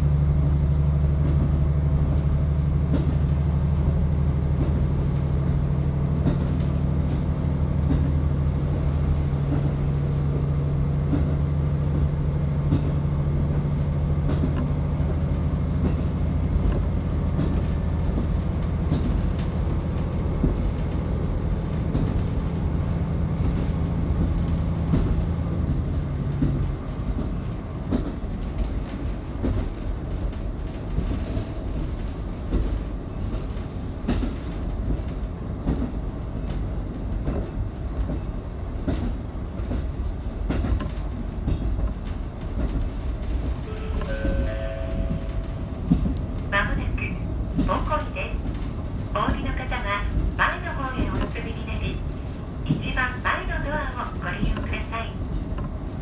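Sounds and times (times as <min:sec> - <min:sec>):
train wheels rumbling: 0:00.0 - 0:56.0
clicks over rail joints: 0:23.4 - 0:44.4.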